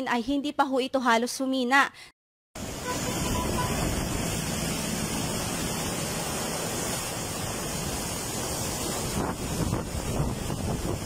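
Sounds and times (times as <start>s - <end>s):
flooded river rushing: 2.6s - 11.0s.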